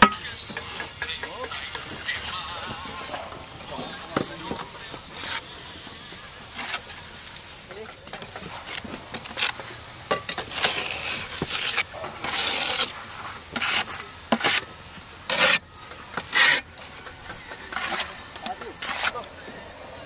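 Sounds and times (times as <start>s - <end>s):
trowel scraping mortar: 0.6s - 5.6s, 6.5s - 7.0s, 10.3s - 14.7s, 15.3s - 19.4s.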